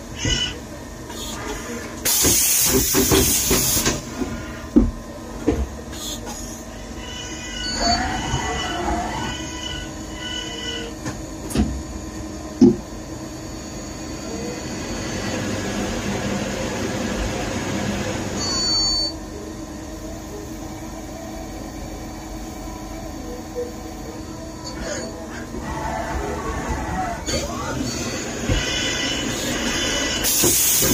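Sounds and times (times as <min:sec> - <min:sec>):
machine spindle whine: 0:00.0 - 0:30.9
hiss of cutting under coolant: 0:30.2 - 0:30.9.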